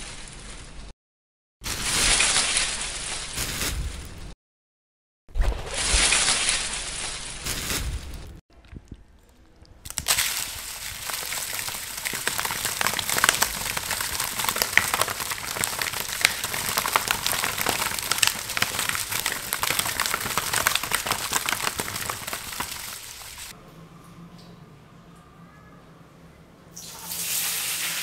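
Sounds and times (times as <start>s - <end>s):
salt grains crackling: 9.8s - 23.5s
eels thrashing in plastic basin: 9.9s - 23.4s.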